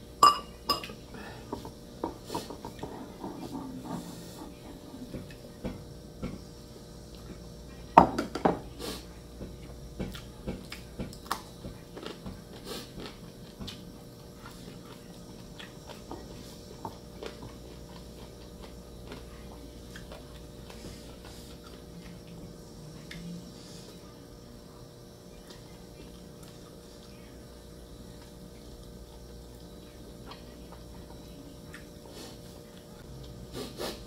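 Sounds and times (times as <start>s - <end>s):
ceramic bowls and spoons clinking: 0.2s - 1.0s
chewing: 10.0s - 24.0s, 25.4s - 27.2s, 28.1s - 34.0s.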